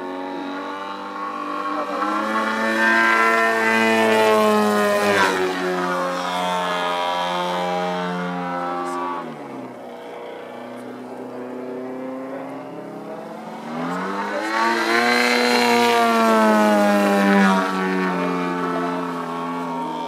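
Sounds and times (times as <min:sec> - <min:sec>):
model plane engine and propeller: 0:13.8 - 0:20.0.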